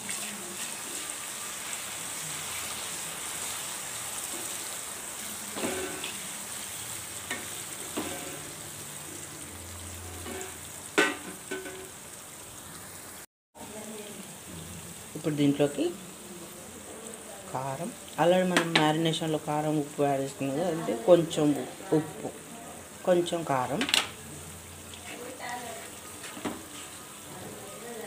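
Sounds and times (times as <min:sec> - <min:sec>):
vegetables sizzling in hot oil: 0:00.0 - 0:28.0
spatula knocking and scraping pan: 0:05.5 - 0:06.2, 0:07.3 - 0:08.6, 0:10.2 - 0:11.9, 0:26.2 - 0:27.0.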